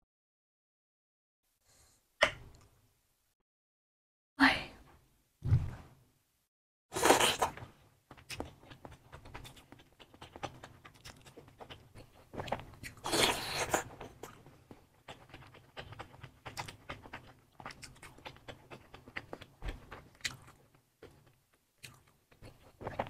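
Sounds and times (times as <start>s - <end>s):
close chewing and biting: 7.0s - 23.0s.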